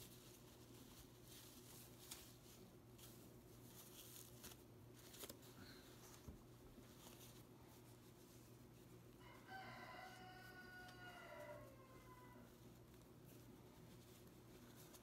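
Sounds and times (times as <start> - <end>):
chicken long call: 9.5 - 12.5.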